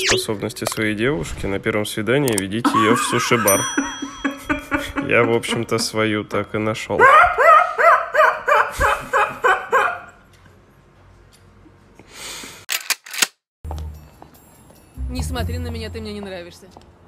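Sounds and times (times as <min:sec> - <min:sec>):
woman laughing: 0:02.7 - 0:06.0.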